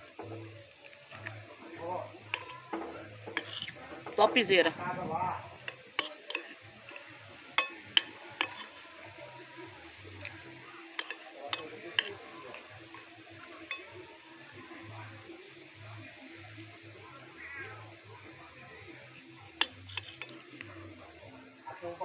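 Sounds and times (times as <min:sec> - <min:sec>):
metal spoon clinking on a plate: 0:02.3 - 0:04.1, 0:05.6 - 0:06.6, 0:07.6 - 0:08.9, 0:10.3 - 0:14.1, 0:19.6 - 0:20.6.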